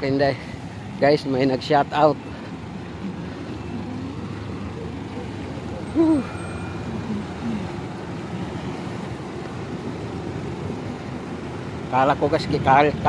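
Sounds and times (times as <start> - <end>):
road traffic hum: 0.0 - 13.0
hoot-like call: 3.0 - 7.8.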